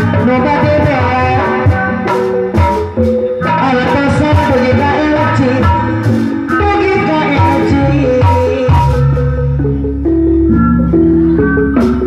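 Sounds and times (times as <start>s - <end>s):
drum strokes: 0.0s - 9.2s
bass part: 0.0s - 12.0s
melodic instrument lines: 0.0s - 12.0s.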